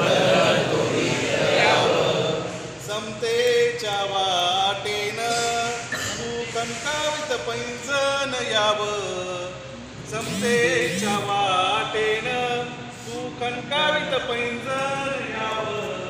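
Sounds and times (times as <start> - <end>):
men singing unaccompanied: 0.0 - 2.4.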